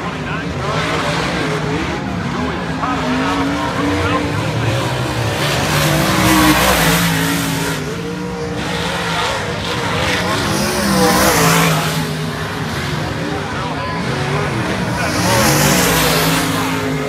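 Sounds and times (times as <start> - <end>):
race car engines passing: 0.0 - 17.0.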